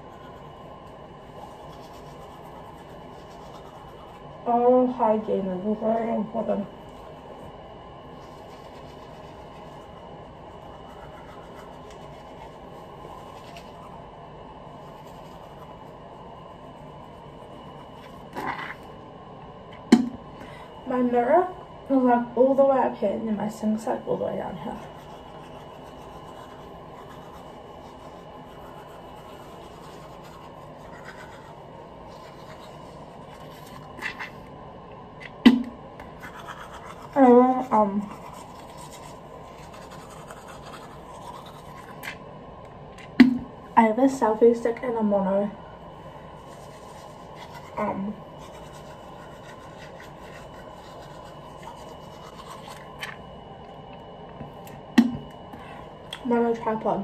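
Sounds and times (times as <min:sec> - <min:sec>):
toothbrush scrubbing teeth: 0:00.0 - 0:05.6, 0:06.8 - 0:07.5, 0:08.1 - 0:14.1, 0:14.7 - 0:18.9, 0:23.8 - 0:34.5, 0:36.0 - 0:42.2, 0:46.3 - 0:53.2.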